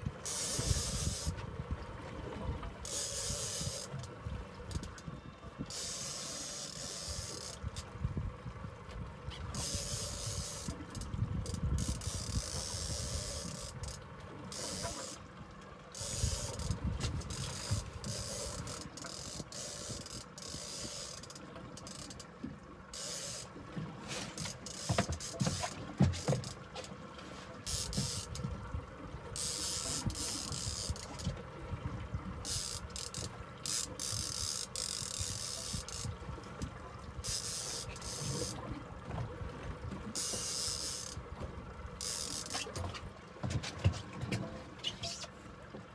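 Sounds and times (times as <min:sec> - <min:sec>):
water: 0:00.0 - 0:45.9
fishing reel ratcheting whir: 0:00.2 - 0:01.4, 0:02.8 - 0:04.1, 0:04.7 - 0:05.0, 0:05.7 - 0:07.9, 0:09.5 - 0:15.2, 0:15.9 - 0:22.2, 0:22.9 - 0:23.5, 0:24.4 - 0:26.6, 0:27.6 - 0:28.5, 0:29.4 - 0:31.3, 0:32.4 - 0:36.2, 0:37.2 - 0:38.6, 0:40.1 - 0:41.2, 0:41.9 - 0:42.9
wind hiss: 0:00.2 - 0:01.4, 0:02.9 - 0:03.9, 0:09.5 - 0:14.0, 0:16.0 - 0:21.2, 0:32.4 - 0:36.2.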